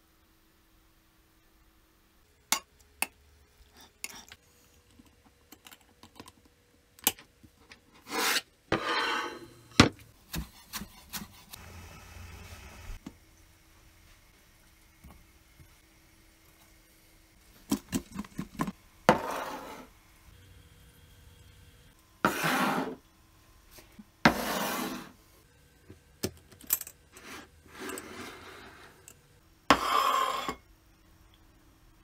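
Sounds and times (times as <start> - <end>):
kitchenware scraping on stone: 8.0 - 9.6, 19.1 - 19.9, 27.1 - 30.6.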